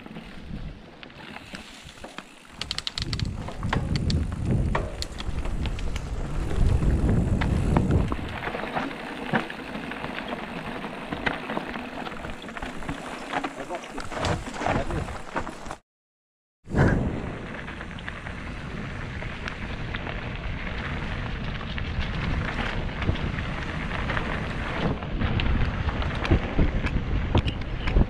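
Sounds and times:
bike tyres on dirt: 0.0 - 15.8, 16.7 - 28.0
bike chain and frame rattling: 1.2 - 15.8
wind buffeting microphone: 2.6 - 8.6, 16.7 - 28.0.

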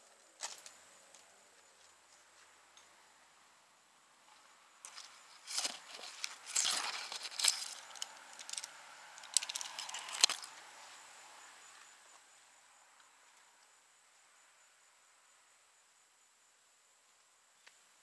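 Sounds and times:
rustling leaves and branches: 4.2 - 12.3.

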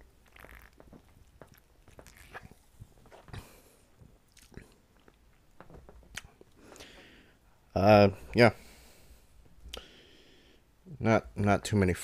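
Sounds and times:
person gulping and swallowing: 0.0 - 6.6
lip smacks: 0.2 - 3.4, 4.2 - 5.4.

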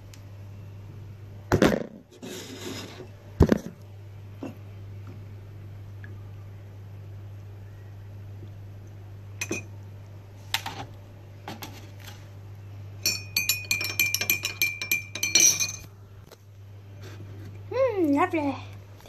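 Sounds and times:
teaspoon clinking in mug: 13.0 - 15.8.

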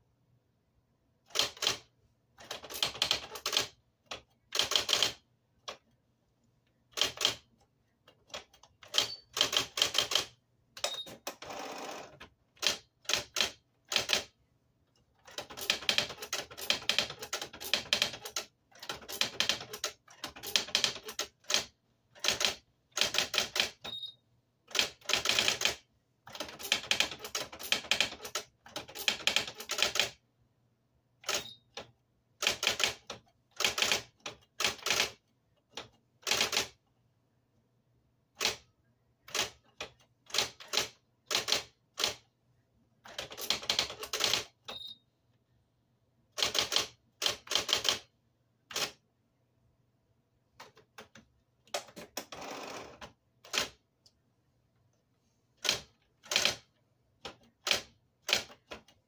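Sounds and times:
typewriter mechanical whir: 1.3 - 5.2, 8.2 - 14.3, 15.2 - 24.0, 24.7 - 30.2, 31.2 - 36.8, 51.7 - 53.8, 55.6 - 59.0.

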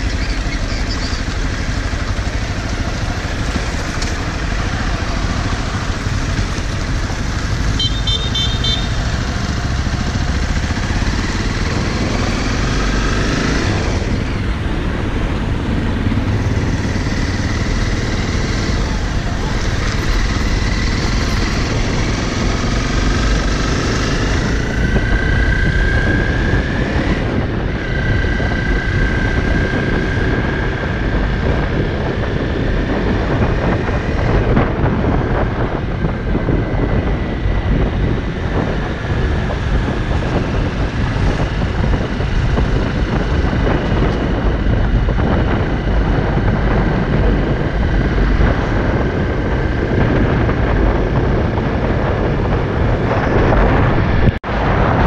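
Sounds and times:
motorcycle engine accelerating: 0.0 - 55.0
wind rumble on microphone: 0.0 - 55.0.

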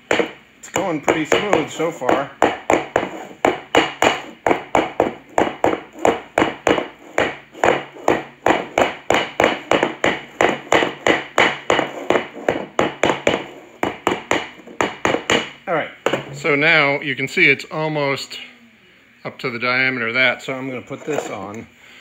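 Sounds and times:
rubber mallet tapping a tire: 0.0 - 16.2.

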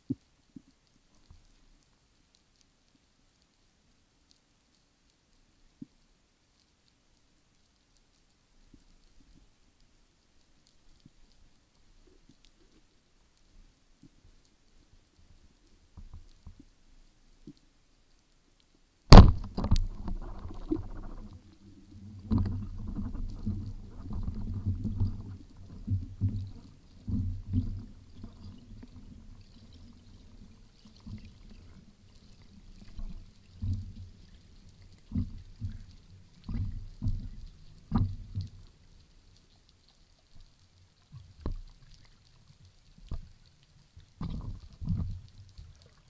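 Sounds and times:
sharp underwater knock: 19.1 - 21.4
underwater air bubbles gurgling: 19.3 - 38.6.

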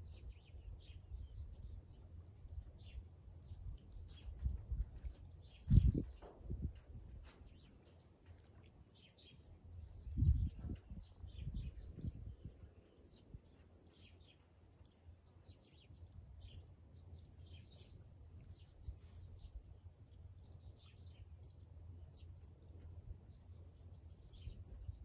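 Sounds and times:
small birds chirping: 0.0 - 25.0
low rumble: 9.8 - 12.7.

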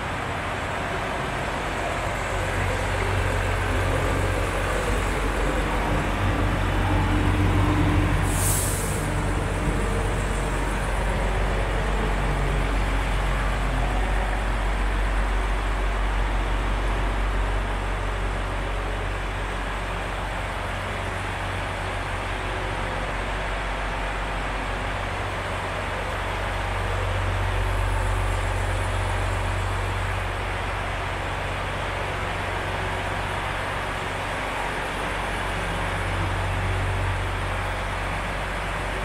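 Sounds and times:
truck diesel engine idling: 0.0 - 39.0
compressed air hiss: 8.2 - 9.7.

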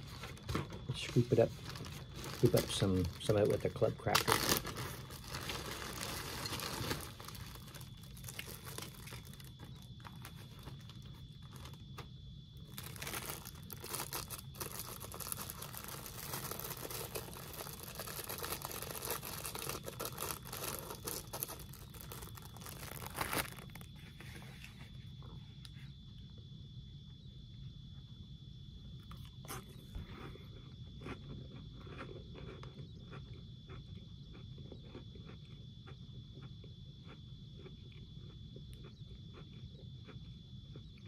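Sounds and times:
plastic wrapper crinkling: 0.0 - 24.0.

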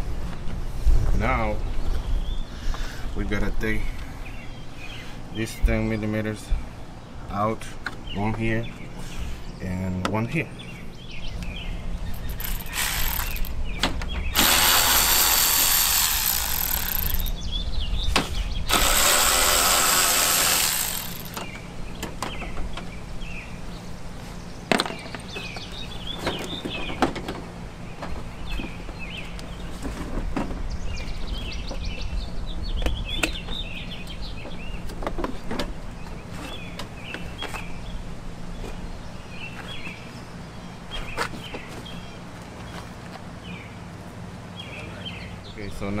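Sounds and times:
birds chirping: 1.3 - 46.0
cordless power tool running: 12.4 - 13.5, 14.3 - 17.3, 18.7 - 21.5.

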